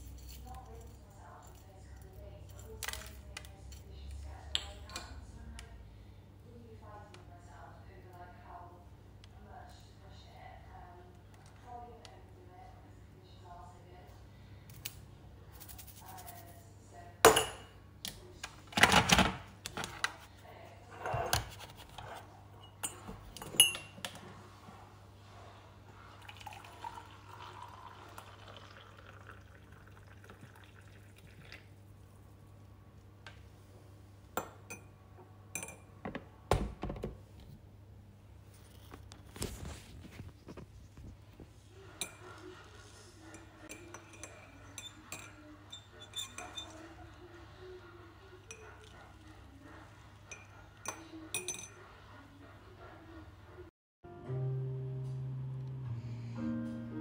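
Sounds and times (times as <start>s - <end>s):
metal clinking against mug: 17.3s - 17.7s, 22.6s - 24.0s, 43.3s - 46.8s, 50.3s - 51.8s
tea infuser and mug clinking: 26.2s - 31.6s, 43.3s - 47.0s, 50.3s - 51.8s.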